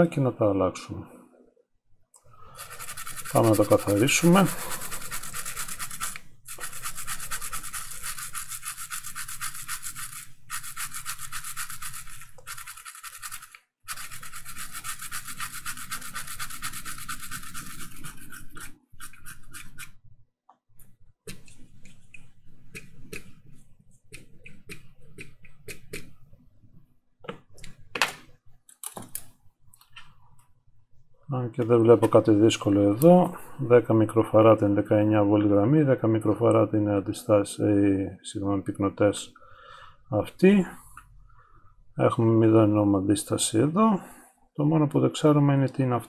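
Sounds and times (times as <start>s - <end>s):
brush scrubbing circuit board: 2.4s - 20.0s, 21.3s - 26.2s.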